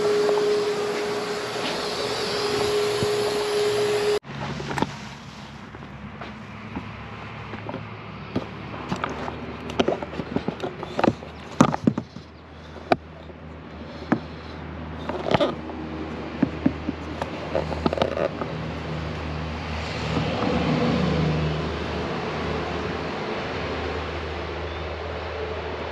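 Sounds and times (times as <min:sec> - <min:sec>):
cordless drill running: 0:00.0 - 0:04.2
handling knocks and clicks: 0:05.7 - 0:13.4, 0:14.0 - 0:19.3.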